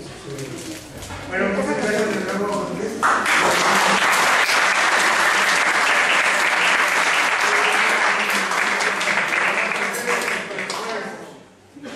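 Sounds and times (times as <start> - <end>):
audience applauding: 3.0 - 11.1.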